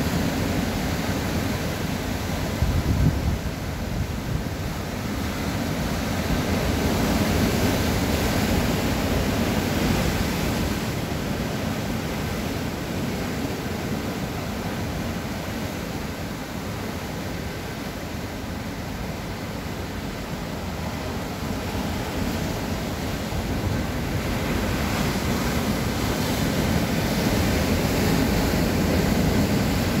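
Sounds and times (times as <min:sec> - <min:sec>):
sea surf breaking over rocks: 0:00.0 - 0:30.0.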